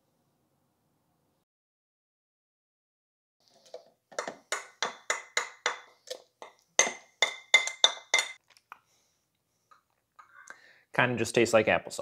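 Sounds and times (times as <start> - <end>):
metal spoon clinking on plate: 4.2 - 8.4.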